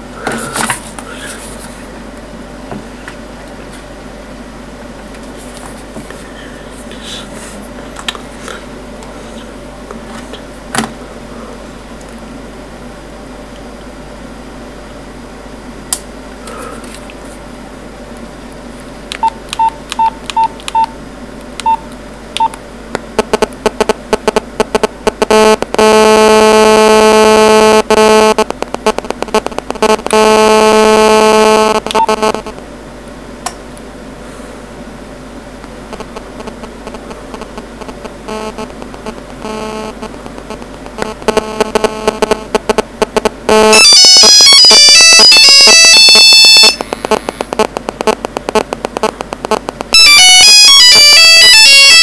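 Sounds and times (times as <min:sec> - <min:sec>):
radio interference buzzing: 0:23.0 - 0:32.6, 0:35.8 - 0:52.0.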